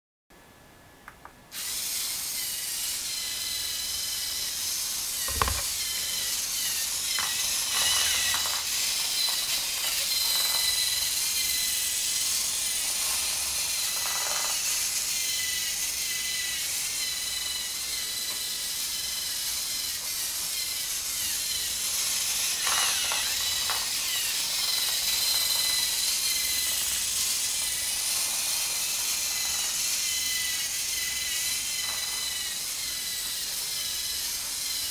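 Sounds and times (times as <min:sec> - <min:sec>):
servo motors whining: 0:01.6 - 0:34.9
knock: 0:05.3 - 0:05.7.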